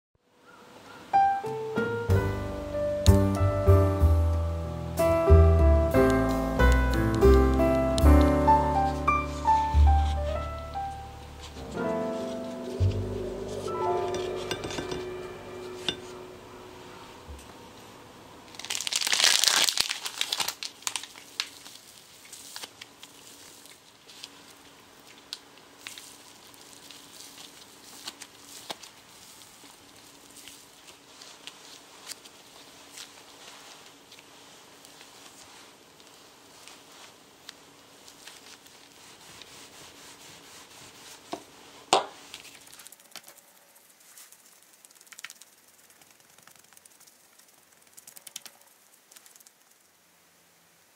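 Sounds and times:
hands kneading craft clay: 0:06.0 - 0:11.6, 0:18.6 - 0:50.0
crinkling: 0:18.5 - 0:50.0.

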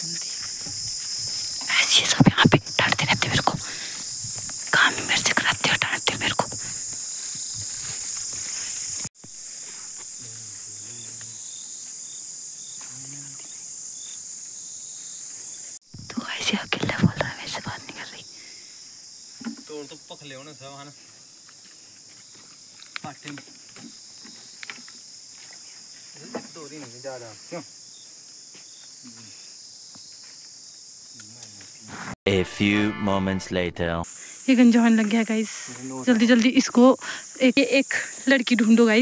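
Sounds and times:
insects droning: 0:00.0 - 0:32.2, 0:33.3 - 0:39.0
person speaking: 0:01.7 - 0:03.8, 0:32.3 - 0:34.1.

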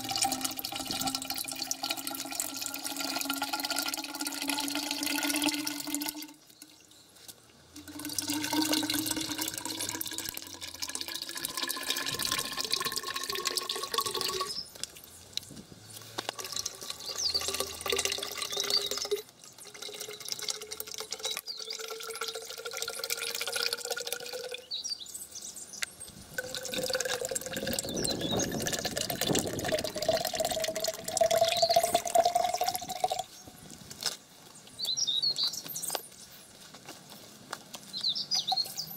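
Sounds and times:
oil pouring into a tank: 0:00.0 - 0:06.8, 0:07.8 - 0:14.6, 0:16.3 - 0:24.6, 0:26.3 - 0:33.3.

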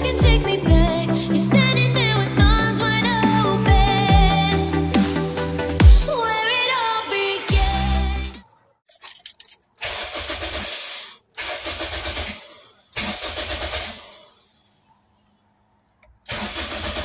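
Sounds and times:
starter motor cranking engine: 0:09.8 - 0:14.8, 0:16.0 - 0:17.0.

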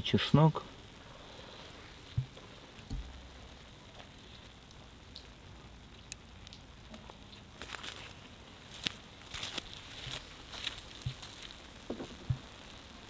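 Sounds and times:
light crackles: 0:00.0 - 0:13.0
oil sizzling in a pot: 0:00.0 - 0:13.0.

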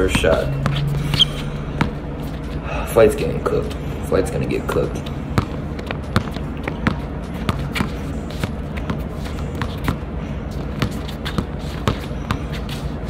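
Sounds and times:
basketball dribbling: 0:00.0 - 0:02.4, 0:05.1 - 0:12.9
steady low hum: 0:00.0 - 0:13.0.

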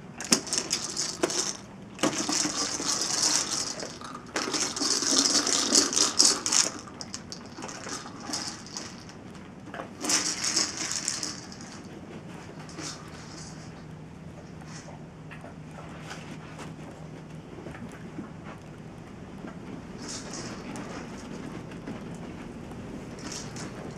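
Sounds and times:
kibble rattling in treat ball: 0:00.2 - 0:09.3, 0:10.0 - 0:13.9, 0:20.0 - 0:21.8, 0:23.1 - 0:23.9.

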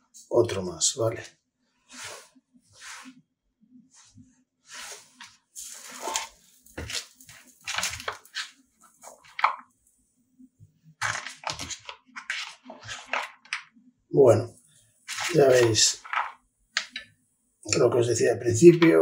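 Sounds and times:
rustling and crinkling: 0:03.8 - 0:09.9, 0:11.0 - 0:13.8, 0:14.6 - 0:17.1.

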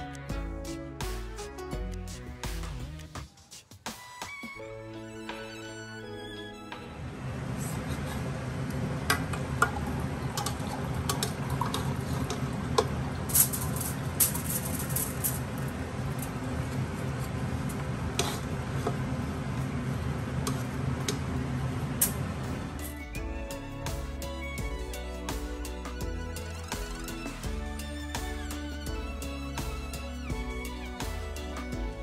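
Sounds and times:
steady low hum: 0:06.9 - 0:23.1.

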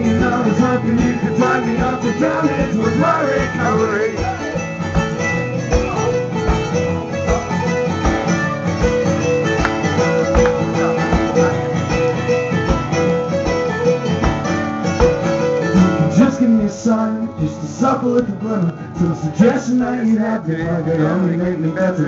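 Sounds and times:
acoustic guitars playing: 0:00.0 - 0:22.0.

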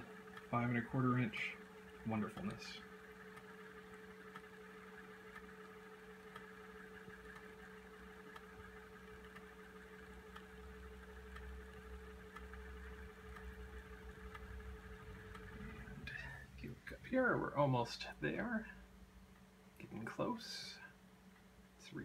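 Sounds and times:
faint ticks: 0:00.0 - 0:17.0
floppy drive motor hum: 0:00.0 - 0:22.0.

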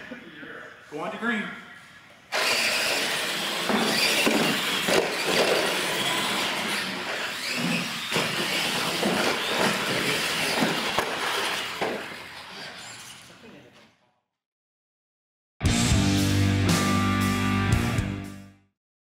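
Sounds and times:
toy trucks whirring on concrete: 0:02.3 - 0:13.7.

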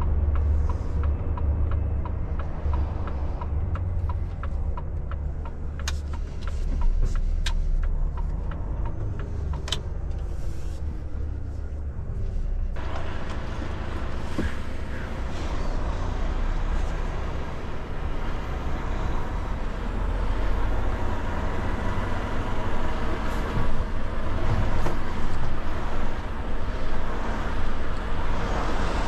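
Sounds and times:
turn signal ticking: 0:00.0 - 0:10.4
truck diesel engine rumbling: 0:00.0 - 0:29.0.

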